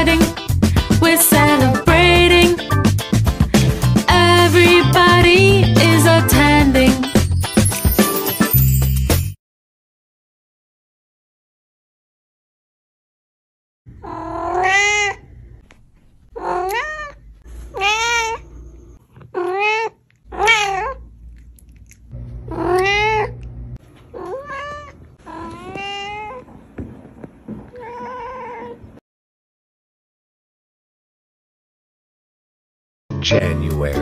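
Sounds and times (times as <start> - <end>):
cat meowing: 14.0 - 15.3, 16.4 - 18.5, 19.3 - 21.0, 22.5 - 23.4, 24.1 - 26.5, 27.7 - 28.9.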